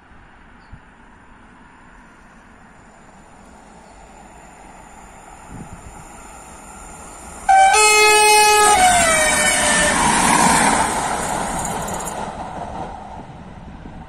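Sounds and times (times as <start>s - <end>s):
train rushing past: 1.9s - 14.0s
train horn: 7.5s - 10.4s.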